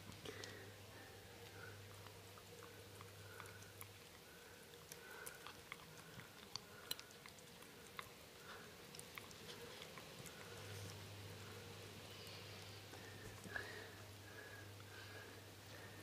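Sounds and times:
dog licking and smacking: 1.4 - 11.1.

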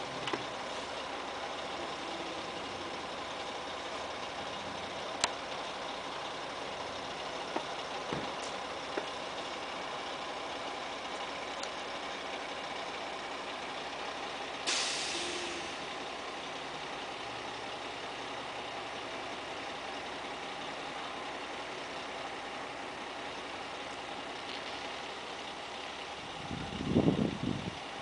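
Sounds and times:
diesel truck engine running: 0.0 - 28.0
compressed air hiss: 14.6 - 15.8.

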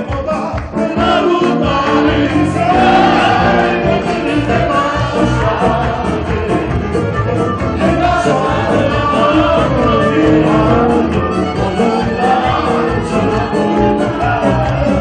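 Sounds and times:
electric guitar: 0.0 - 15.0
live band playing dance music: 0.0 - 15.0
violin: 9.4 - 15.0.

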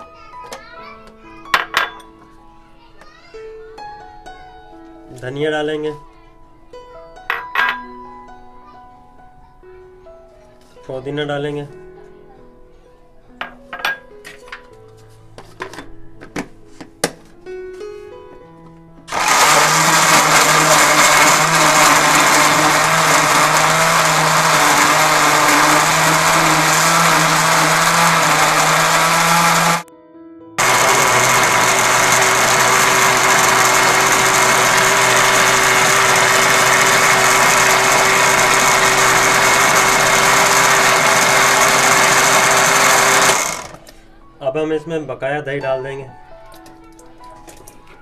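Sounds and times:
blender running: 19.1 - 29.9, 30.6 - 43.9.

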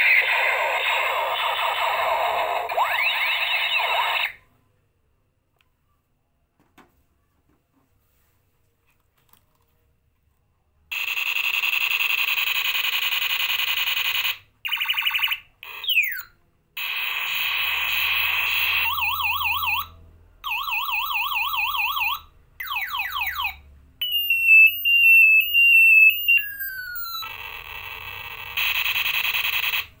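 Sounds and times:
electronic buzz: 0.0 - 4.4, 16.8 - 19.4, 24.0 - 30.0
falling beeps: 0.0 - 4.4, 22.1 - 27.3
warbling siren: 0.0 - 4.4, 17.7 - 29.8.

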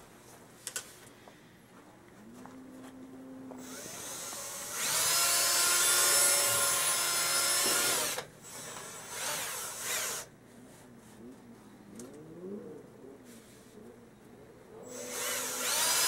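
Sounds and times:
cordless drill spinning: 3.6 - 10.3, 14.9 - 16.0.

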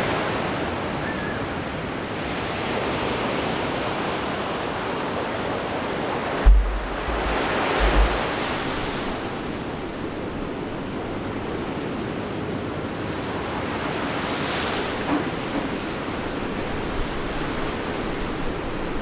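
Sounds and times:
ocean surf breaking: 2.0 - 12.0
wind buffeting microphone: 6.2 - 10.8.

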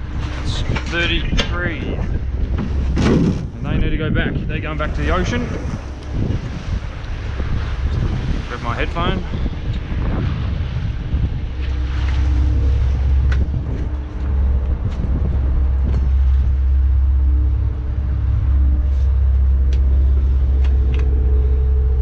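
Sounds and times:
boat diesel engine drone: 0.0 - 22.0.

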